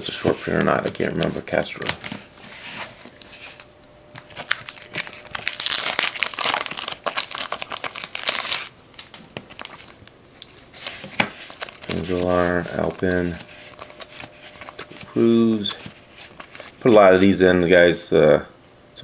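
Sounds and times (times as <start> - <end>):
plastic wrapping crinkling: 3.0 - 17.0.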